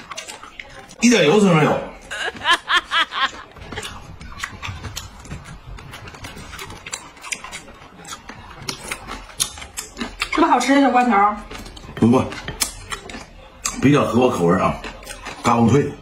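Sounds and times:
crunching pickled melon: 3.6s - 16.0s.

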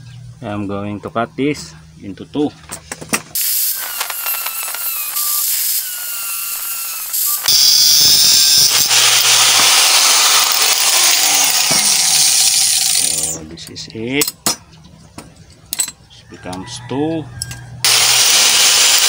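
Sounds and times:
angle grinder cutting metal: 3.4s - 13.4s, 17.8s - 19.0s.

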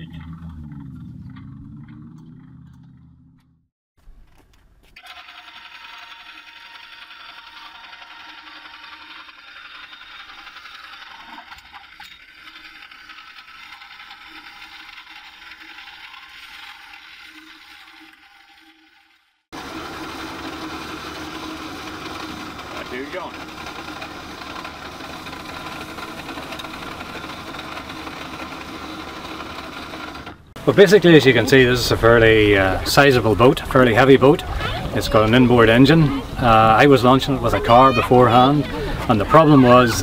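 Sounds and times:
electric winch motor whirring: 0.0s - 3.5s, 5.0s - 40.0s.

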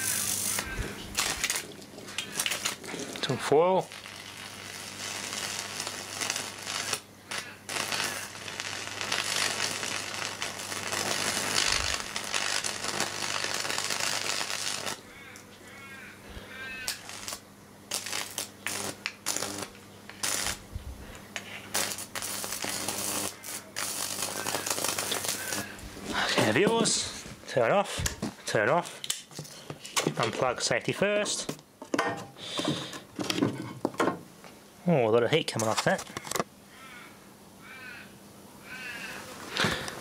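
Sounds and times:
electric arc crackling: 0.0s - 15.4s, 16.4s - 27.1s
electrical hum: 0.0s - 40.0s.

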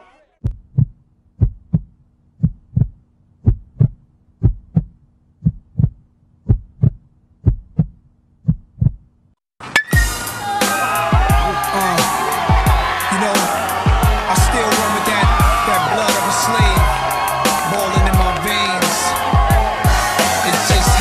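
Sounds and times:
heartbeat thumps: 0.4s - 9.0s, 13.8s - 14.6s, 16.6s - 17.2s, 19.2s - 21.0s.

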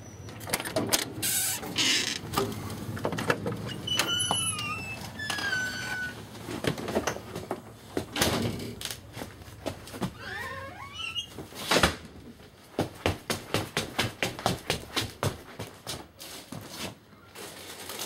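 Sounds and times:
door squeaking: 0.0s - 2.2s, 3.6s - 6.3s, 10.1s - 11.4s.

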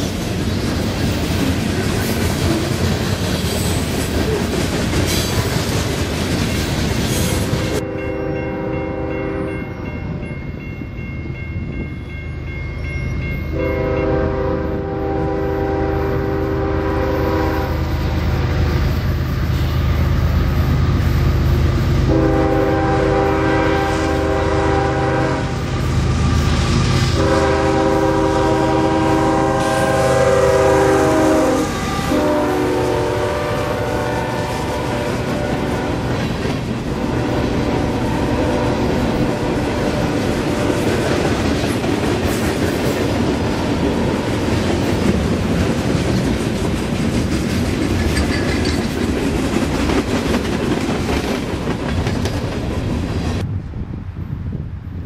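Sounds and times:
train wheels rumbling: 0.0s - 55.0s
locomotive horn blasts: 7.6s - 9.7s, 13.5s - 18.0s, 22.0s - 25.7s, 27.1s - 36.2s, 36.9s - 40.9s.

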